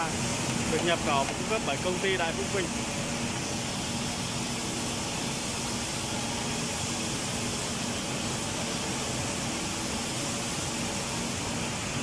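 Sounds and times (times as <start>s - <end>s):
factory machinery hum and hiss: 0.0s - 12.0s.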